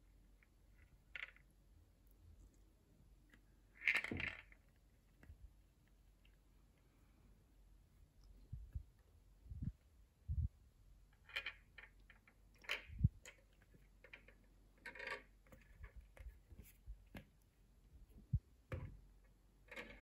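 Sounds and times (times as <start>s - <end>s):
ball rattling in plastic maze: 11.2s - 16.2s.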